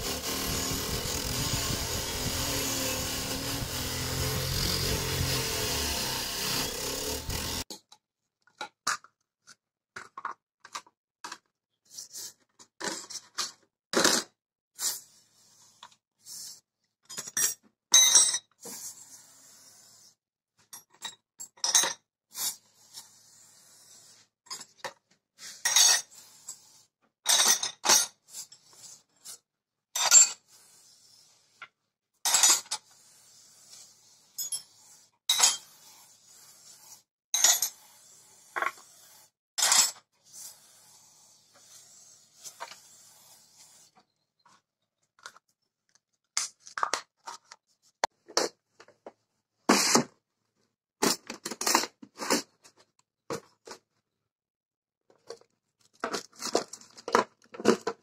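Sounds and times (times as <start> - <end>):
bench grinder wire wheel running: 0.0 - 7.7.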